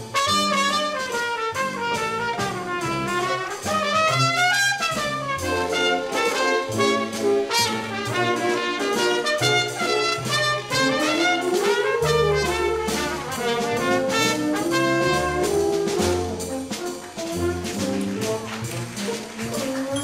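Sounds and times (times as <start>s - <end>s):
orchestra playing a waltz: 0.0s - 20.0s
solo trumpet melody: 0.0s - 20.0s.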